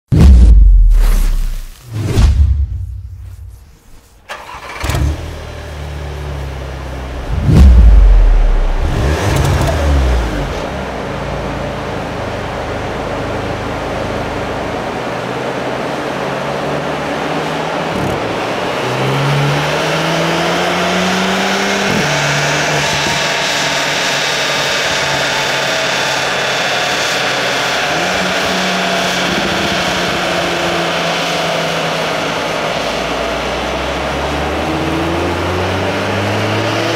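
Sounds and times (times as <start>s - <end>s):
deep boom: 0.1s - 4.0s, 7.2s - 10.6s
steady rushing noise: 0.1s - 4.6s, 6.1s - 18.8s
car engine revving on dyno: 4.4s - 36.9s.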